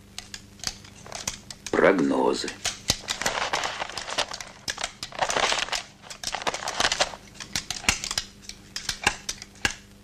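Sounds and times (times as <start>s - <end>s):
abacus beads clacking: 0.2s - 1.8s, 2.4s - 9.8s
rustling: 2.6s - 8.2s.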